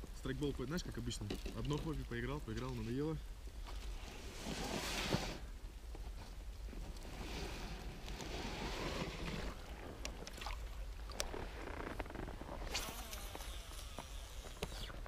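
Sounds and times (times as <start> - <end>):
light wind: 0.0 - 15.0
water lapping: 8.1 - 11.9.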